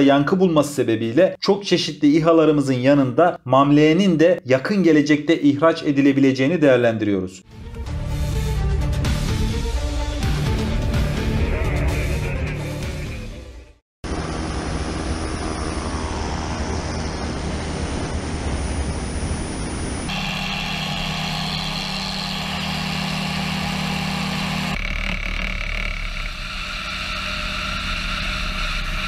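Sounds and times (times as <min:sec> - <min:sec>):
drone engine and propeller hum: 0:14.0 - 0:29.0.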